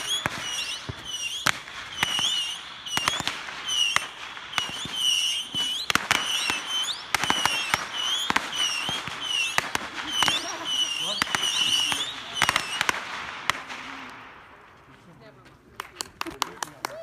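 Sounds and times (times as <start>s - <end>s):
fireworks pops and bangs: 0.0s - 17.0s.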